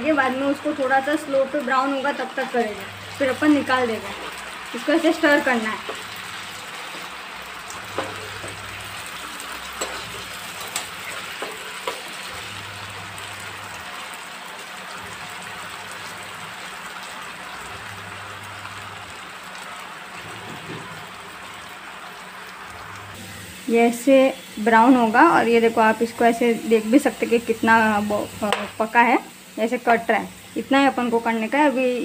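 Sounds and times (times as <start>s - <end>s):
potatoes sizzling in oil: 0.0s - 32.0s
metal spoon clinking on pan: 9.8s - 12.1s.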